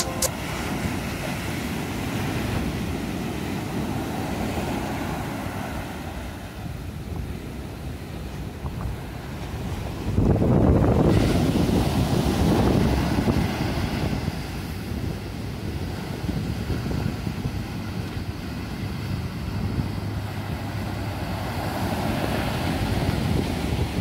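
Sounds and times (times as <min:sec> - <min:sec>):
breaking surf: 0:00.0 - 0:24.0
wind noise on microphone: 0:00.0 - 0:24.0
boat engine running: 0:15.8 - 0:24.0.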